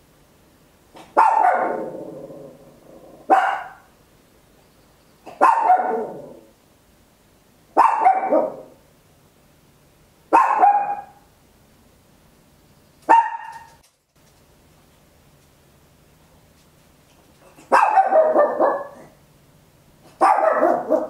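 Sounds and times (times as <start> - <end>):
small dog barking: 1.0 - 2.0, 3.2 - 3.9, 5.3 - 6.5, 7.7 - 8.8, 10.3 - 11.3, 13.1 - 13.8, 17.6 - 19.2, 20.0 - 21.0.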